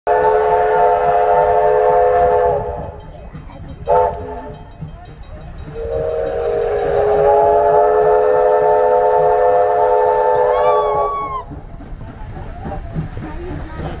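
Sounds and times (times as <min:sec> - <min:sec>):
steam locomotive chime whistle: 0:00.1 - 0:03.2, 0:03.8 - 0:11.6.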